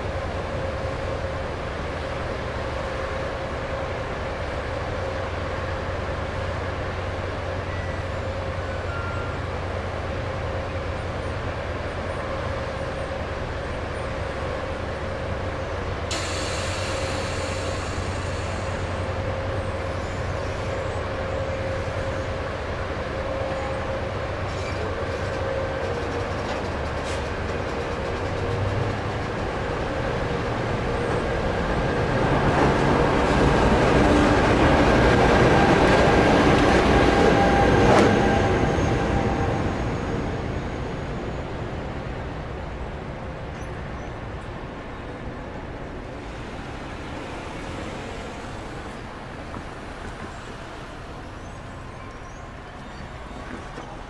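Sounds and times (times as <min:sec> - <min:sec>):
passenger train passing: 0:00.0 - 0:54.0
train wheels clicking on rail: 0:16.1 - 0:20.4, 0:24.4 - 0:31.8, 0:46.3 - 0:54.0.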